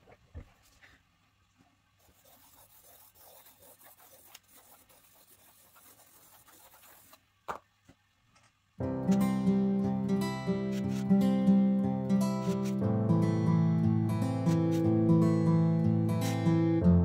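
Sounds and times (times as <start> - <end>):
pencil scribbling on paper: 2.0 - 7.2, 10.6 - 11.1, 12.4 - 12.8, 14.5 - 14.8.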